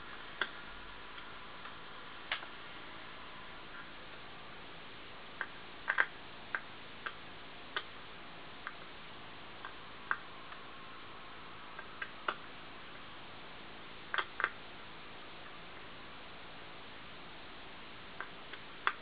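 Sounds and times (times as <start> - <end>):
faint steady hiss: 0.0 - 19.0
fingers clicking on hard drive parts: 5.4 - 8.0, 14.1 - 14.6, 18.2 - 19.0.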